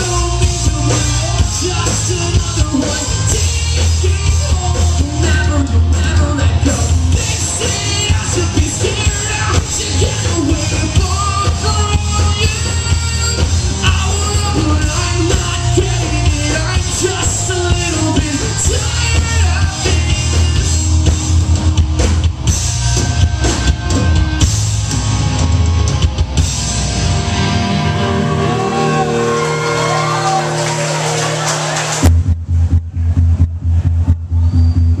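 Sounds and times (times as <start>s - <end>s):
singer: 0.0s - 21.2s
electric guitars: 0.0s - 32.1s
bass guitar: 0.0s - 35.0s
drum kit: 0.0s - 35.0s.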